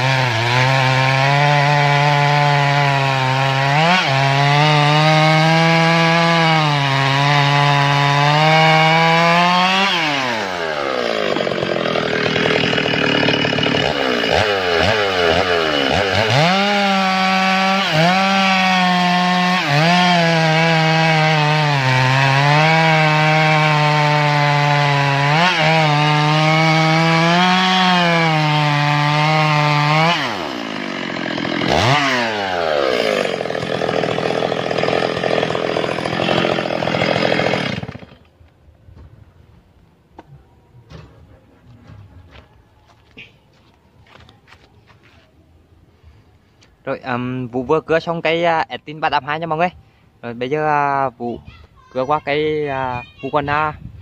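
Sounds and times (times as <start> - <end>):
chainsaw cutting through log: 0.0 - 38.3.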